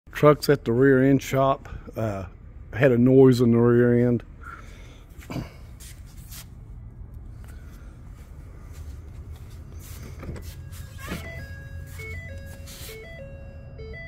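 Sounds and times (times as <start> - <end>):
low steady rumble: 0.1 - 14.0
electronic beeping tune: 10.5 - 14.0.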